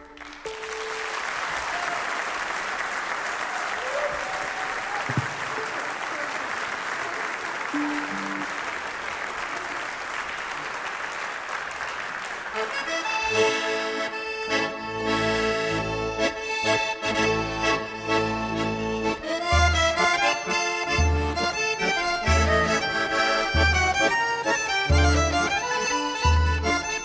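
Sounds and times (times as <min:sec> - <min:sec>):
accordion folk tune: 0:00.0 - 0:01.6, 0:07.7 - 0:08.8, 0:12.1 - 0:27.0
audience applause: 0:00.0 - 0:13.4
violin: 0:12.9 - 0:27.0.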